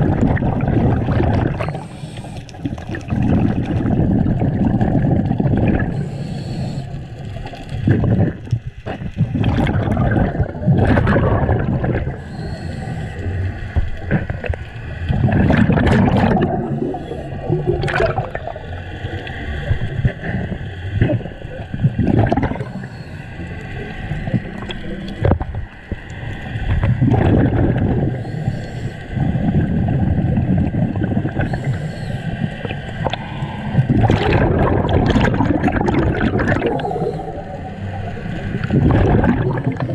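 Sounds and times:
bubbles rushing and gurgling: 0.0 - 39.9
underwater water noise: 0.0 - 39.9
diver breathing through regulator: 1.6 - 2.7, 5.8 - 7.2, 12.0 - 14.1, 16.4 - 17.6, 22.4 - 25.2, 27.4 - 29.4, 31.3 - 34.2, 36.6 - 38.0.

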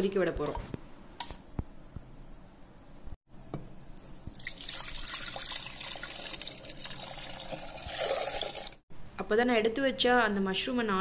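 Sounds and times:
soup bubbling in a pot: 4.3 - 8.8.

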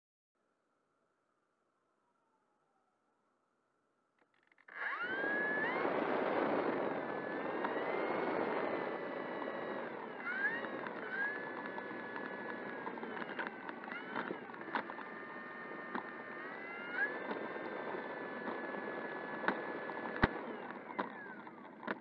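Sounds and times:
electric motor and propeller whine: 4.7 - 22.0
sharp ticks: 7.6 - 15.1.

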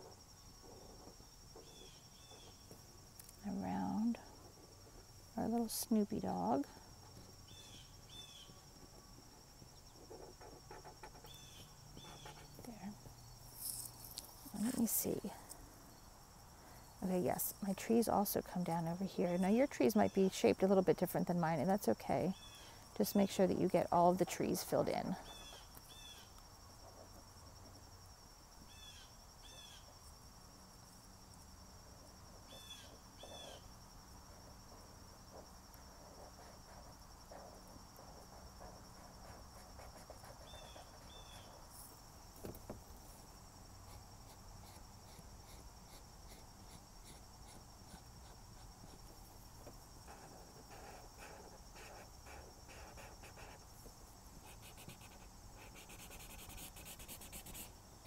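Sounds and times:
marker strokes on paper: 12.0 - 12.6, 36.0 - 41.6, 43.9 - 49.0, 50.0 - 53.7, 54.4 - 57.7.

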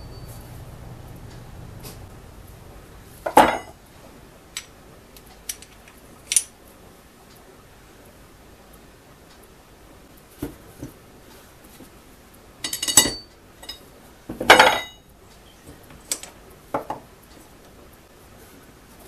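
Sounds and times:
metal parts clinking on a workbench: 5.5 - 6.5, 12.6 - 13.8, 14.5 - 15.0.

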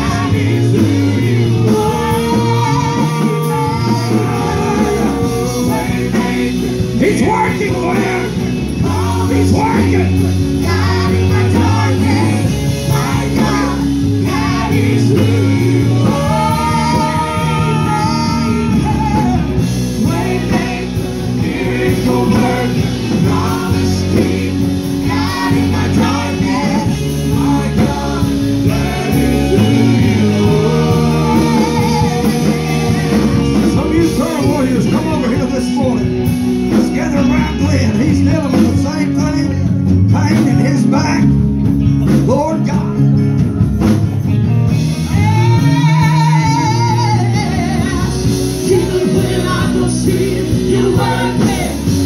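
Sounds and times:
woman singing into microphone: 0.0 - 6.7, 10.6 - 20.9, 29.5 - 33.7, 45.1 - 51.9
instrumental accompaniment: 0.0 - 52.0.

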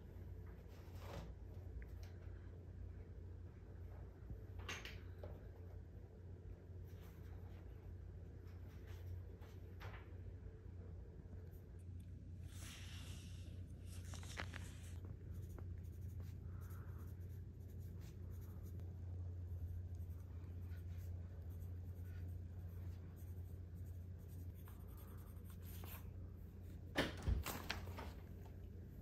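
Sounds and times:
steady low hum: 0.0 - 29.0
pencil scratching on paper: 15.2 - 26.2.

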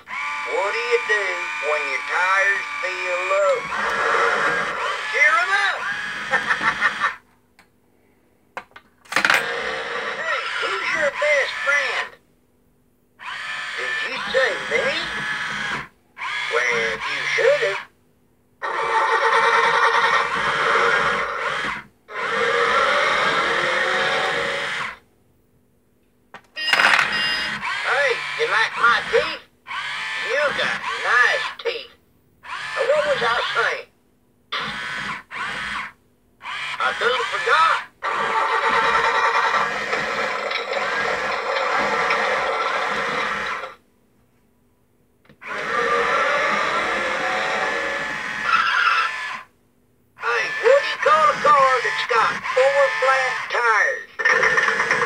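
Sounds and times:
buzzy toy sound effect: 0.1 - 7.0, 13.2 - 15.2, 26.6 - 29.4, 30.0 - 31.6, 36.4 - 37.9, 50.2 - 55.0.

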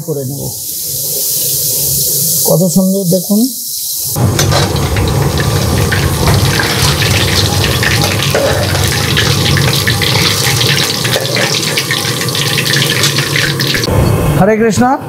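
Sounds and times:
cakes sizzling in hot oil: 4.0 - 13.9.

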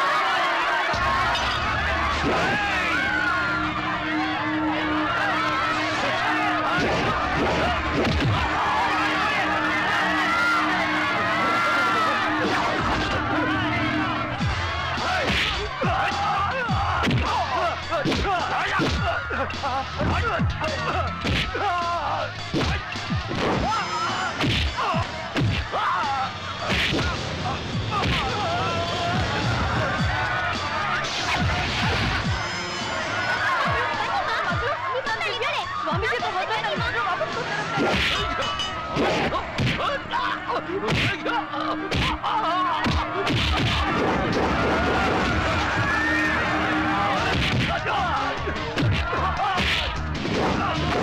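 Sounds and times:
shouting voices: 0.0 - 51.0
dramatic background music: 0.3 - 51.0
punch and kick hits: 24.4 - 24.8.

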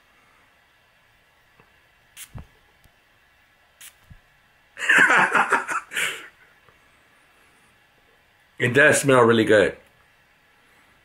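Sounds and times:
faint hisses: 1.8 - 2.6, 3.7 - 9.8.

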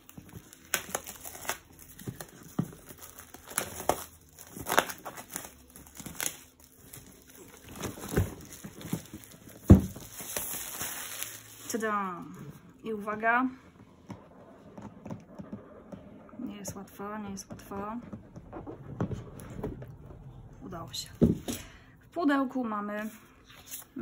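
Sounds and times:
shrink wrap crinkling and tearing: 0.0 - 11.8.

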